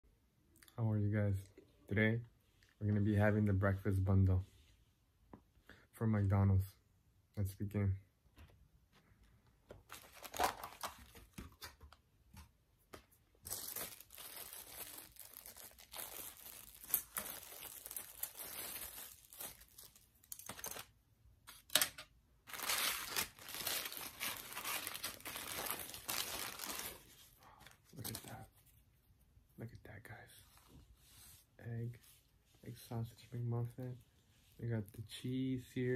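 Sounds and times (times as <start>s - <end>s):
paper wrapper crinkling: 9.8s - 11.9s, 13.4s - 20.9s, 22.4s - 28.4s
plastic bag tearing and rustling: 9.9s - 11.3s, 13.4s - 20.9s, 22.5s - 27.2s.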